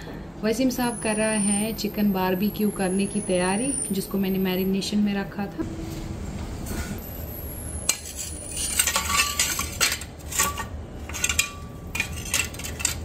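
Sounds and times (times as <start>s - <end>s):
metal objects clinking together: 7.9s - 13.0s.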